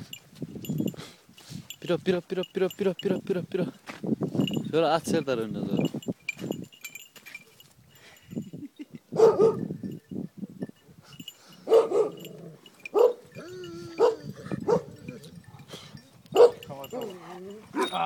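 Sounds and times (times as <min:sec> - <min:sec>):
dog barking: 0:09.2 - 0:09.6, 0:11.7 - 0:12.3, 0:12.9 - 0:13.3, 0:14.0 - 0:15.0, 0:16.4 - 0:16.7.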